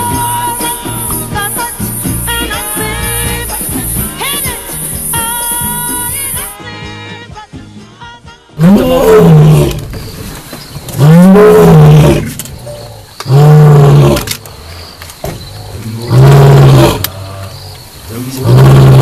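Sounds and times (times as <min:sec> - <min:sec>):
lion roaring: 0:08.6 - 0:10.0, 0:10.9 - 0:14.4, 0:15.5 - 0:19.0.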